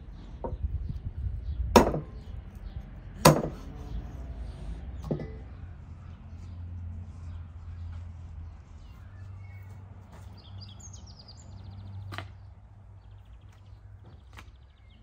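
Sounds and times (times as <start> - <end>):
cleaver chopping on wooden board: 1.8 - 2.1, 3.2 - 3.7.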